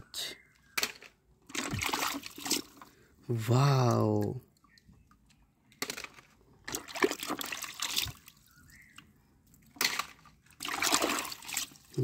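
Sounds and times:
water splashing and sloshing in tub: 0:01.4 - 0:03.0, 0:06.6 - 0:08.5, 0:09.4 - 0:12.0.

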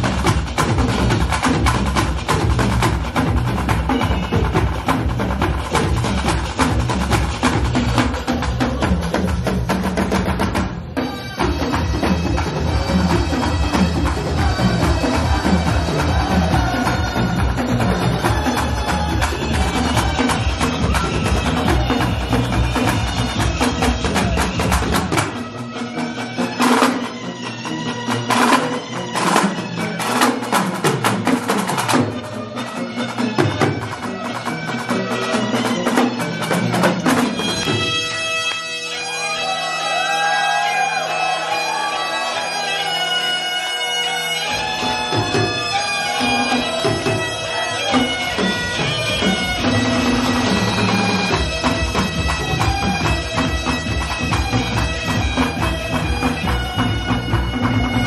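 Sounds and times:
bagpipes playing: 0:10.8 - 0:30.5, 0:32.1 - 0:58.0.

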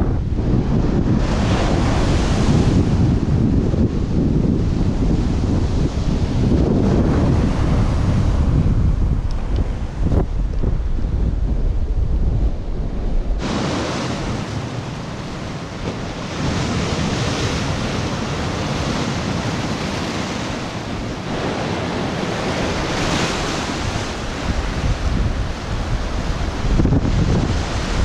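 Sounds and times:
wind rumble on microphone: 0:00.0 - 0:28.0
sea waves breaking on rocks: 0:13.4 - 0:28.0.

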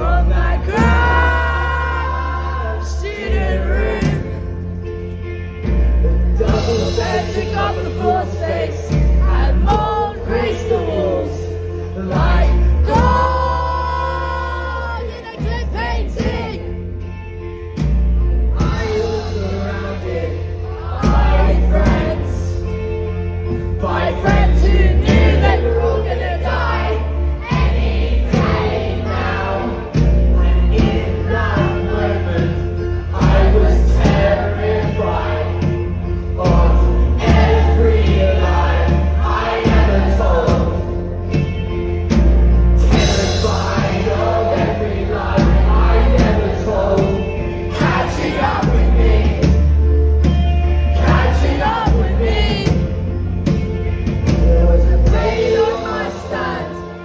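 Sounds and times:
person singing: 0:00.0 - 0:04.6, 0:06.0 - 0:16.8, 0:54.2 - 0:57.0
heavy boomy bass: 0:00.0 - 0:56.6
drums: 0:00.0 - 0:57.0
rock band playing live: 0:00.0 - 0:57.0.

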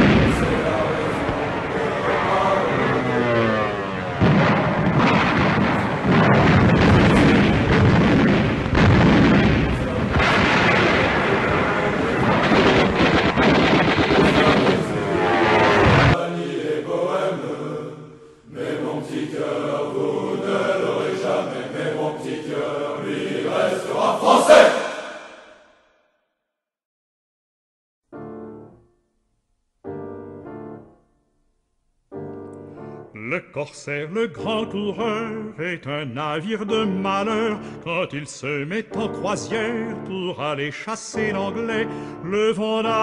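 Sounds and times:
rapid anti-aircraft gunfire: 0:00.0 - 0:16.2
music with sustained notes: 0:32.2 - 0:33.2.

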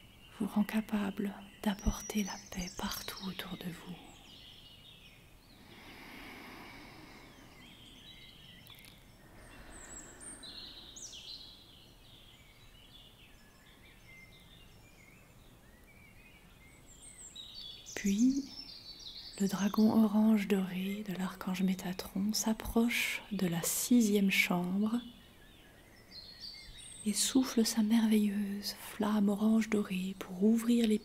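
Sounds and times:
birds chirping: 0:00.0 - 0:31.0
soft rushing background: 0:05.4 - 0:12.2.

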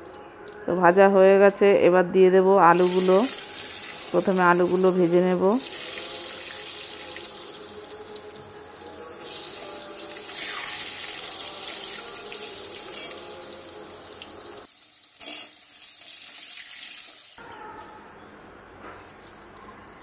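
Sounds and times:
potatoes sizzling in hot oil: 0:02.7 - 0:04.9, 0:09.1 - 0:17.4.

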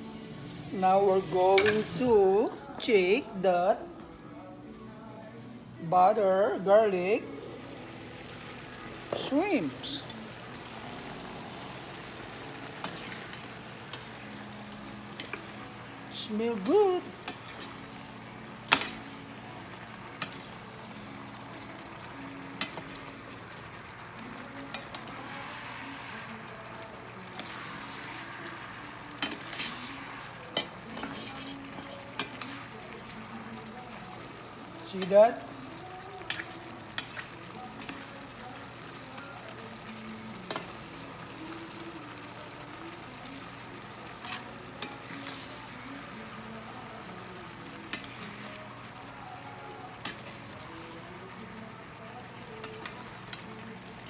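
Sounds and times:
food sizzling in a skillet: 0:00.0 - 0:54.0
metal utensil clinking on pan: 0:01.5 - 0:02.0, 0:12.8 - 0:13.4, 0:16.6 - 0:17.8, 0:22.6 - 0:22.9, 0:29.2 - 0:29.8, 0:30.5 - 0:32.6.

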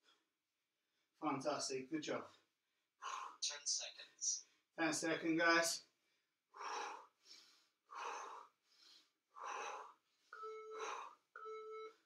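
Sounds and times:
man breathing hard: 0:06.5 - 0:11.2
interval timer beeps: 0:10.4 - 0:12.0.

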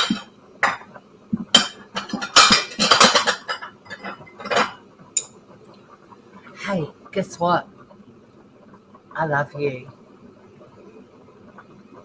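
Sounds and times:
dishes and utensils clattering: 0:00.0 - 0:05.4.

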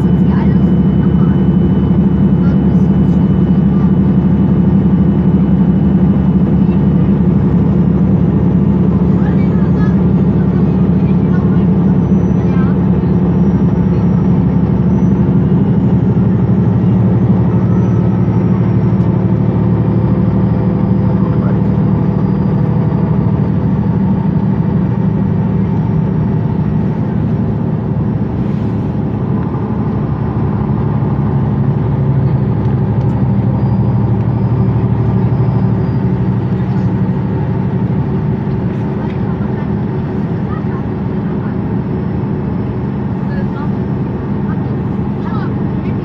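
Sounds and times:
bus diesel engine idling: 0:00.0 - 0:46.0.

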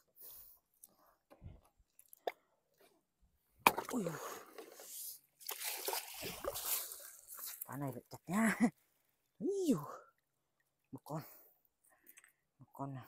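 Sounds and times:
water splash: 0:05.4 - 0:07.6
water streaming off a net: 0:05.4 - 0:07.6.

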